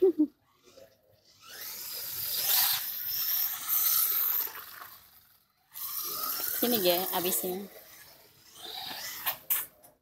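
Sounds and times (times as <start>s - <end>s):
rc car motor whine: 0.4s - 9.8s.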